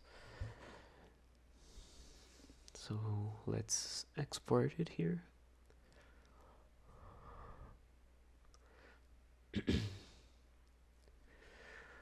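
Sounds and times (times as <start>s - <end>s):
soft breathing: 0.0s - 2.8s, 5.7s - 7.9s, 8.5s - 9.2s, 11.1s - 12.0s
faint low hum: 0.0s - 12.0s.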